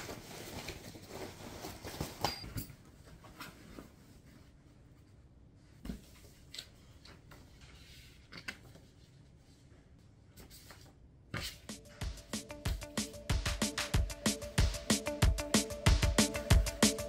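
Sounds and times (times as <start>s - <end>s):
rustling of fabric backpack: 0.0s - 2.4s
background music with steady beat: 11.4s - 17.0s.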